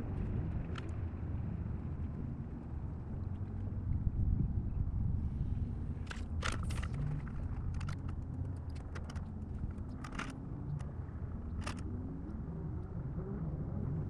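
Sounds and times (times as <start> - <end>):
wind on microphone: 0.0 - 14.0
light clicks and ticks: 0.2 - 1.0, 6.0 - 12.9.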